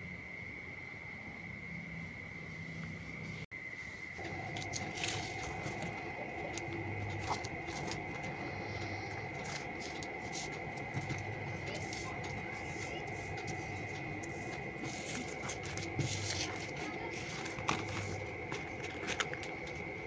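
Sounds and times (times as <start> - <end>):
steady high-pitched tone: 4.1 - 20.0.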